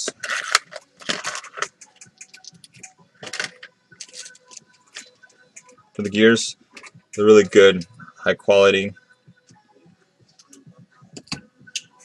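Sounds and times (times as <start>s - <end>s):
plastic package rustling: 0.1s - 1.7s.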